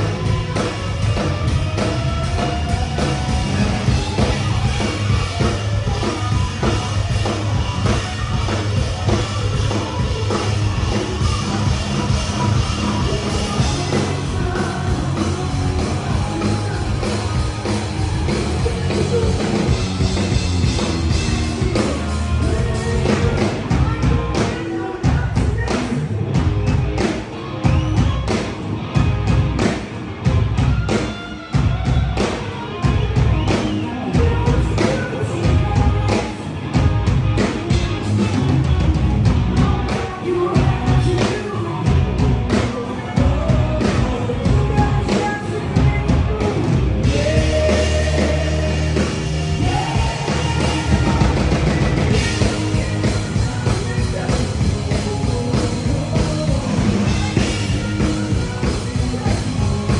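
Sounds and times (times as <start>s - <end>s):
rock band playing live: 0.0s - 59.9s.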